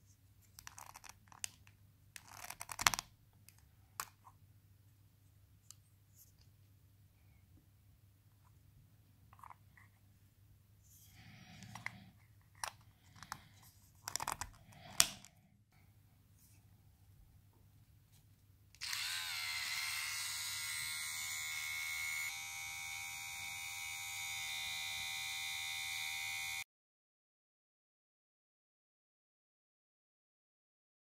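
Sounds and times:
plastic clicks and handling: 0:11.6 - 0:15.4
hair trimmer motor buzzing: 0:18.8 - 0:26.6.

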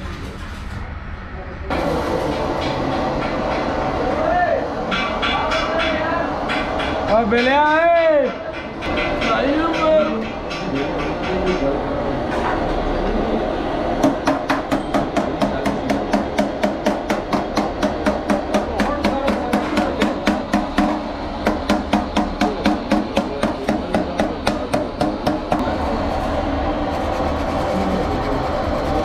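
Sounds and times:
hammer tapping on radiator: 0:14.0 - 0:25.6.

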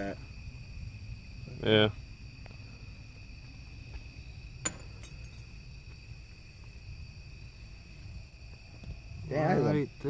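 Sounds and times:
crickets chirping: 0:00.0 - 0:10.0.

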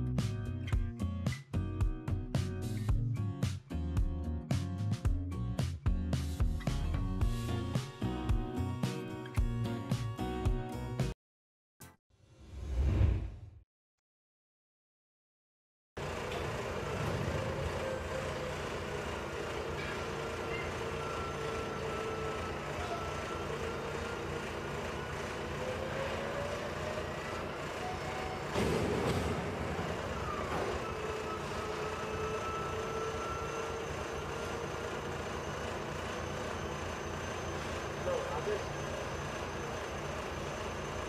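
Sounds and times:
diesel truck engine running: 0:16.0 - 0:41.0
hydraulic whine wavering: 0:16.0 - 0:41.0.

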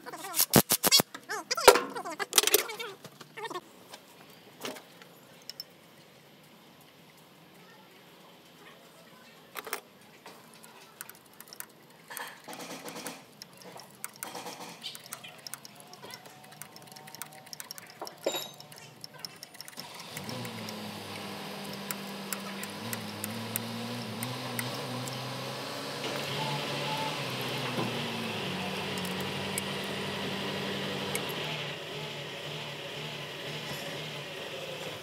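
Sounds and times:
low mechanical hum: 0:00.0 - 0:35.0
metal hand tools clinking: 0:11.3 - 0:20.3.

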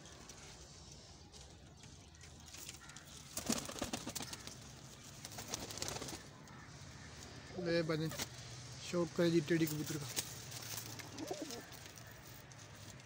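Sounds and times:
pigeons cooing: 0:11.0 - 0:11.8.

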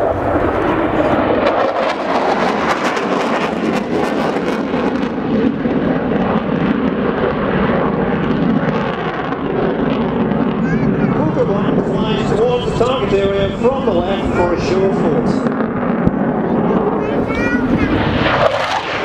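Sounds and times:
jet engines roaring overhead: 0:00.0 - 0:19.0
harsh crackle: 0:14.8 - 0:19.0.

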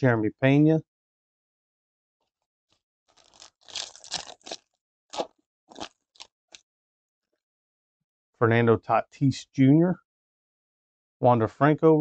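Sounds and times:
foil wrapper tearing and crinkling: 0:03.1 - 0:06.4.

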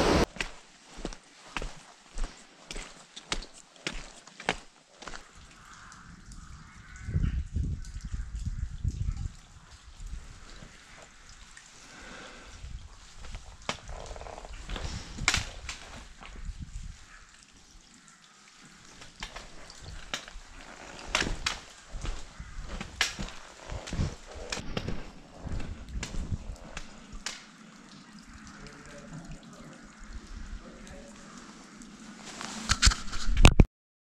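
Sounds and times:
wind buffeting microphone: 0:06.0 - 0:11.3, 0:12.4 - 0:17.2, 0:19.3 - 0:27.4.

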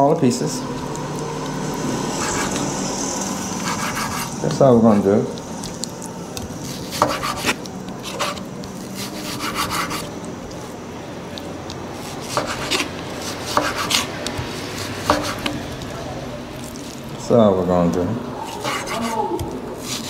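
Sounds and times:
blade scraping board: 0:02.2 - 0:02.6, 0:03.6 - 0:05.0, 0:06.6 - 0:10.1, 0:12.0 - 0:15.7, 0:18.6 - 0:19.2
knife chopping on wooden board: 0:06.7 - 0:08.4, 0:12.0 - 0:15.7.

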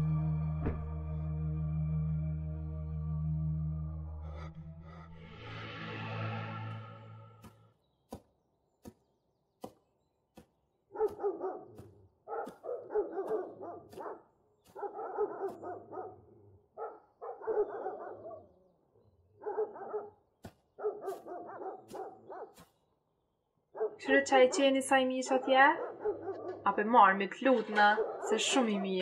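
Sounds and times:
dogs barking: 0:10.9 - 0:18.5, 0:19.4 - 0:22.7, 0:23.7 - 0:24.0, 0:25.3 - 0:26.7, 0:27.6 - 0:29.0.

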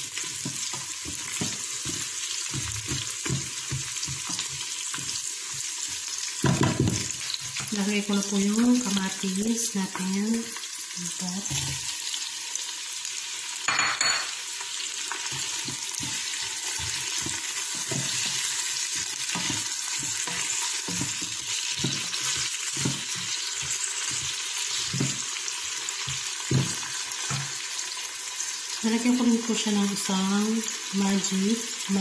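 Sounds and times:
spatula scraping and stirring: 0:00.0 - 0:07.8, 0:14.8 - 0:27.9
vegetables sizzling in hot oil: 0:00.0 - 0:32.0.

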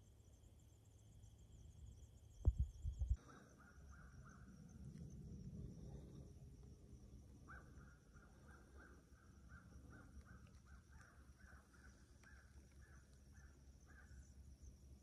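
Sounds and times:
bird calling faintly: 0:07.4 - 0:14.4.

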